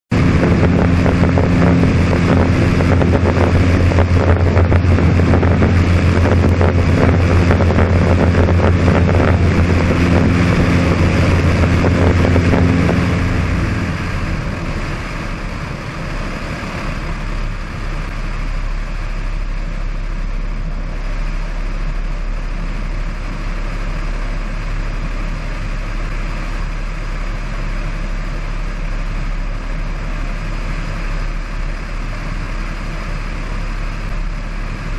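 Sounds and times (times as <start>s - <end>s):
propeller engine running: 0.0s - 34.9s
wind rushing over microphone: 0.1s - 34.9s.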